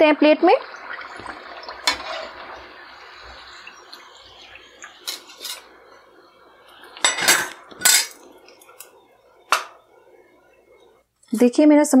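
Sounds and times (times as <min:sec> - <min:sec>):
faint oil sizzle: 0:00.0 - 0:12.0
metal utensils clinking and scraping: 0:01.8 - 0:02.4, 0:05.0 - 0:05.7, 0:07.0 - 0:08.9
utensils clattering: 0:05.0 - 0:05.7, 0:07.0 - 0:08.9.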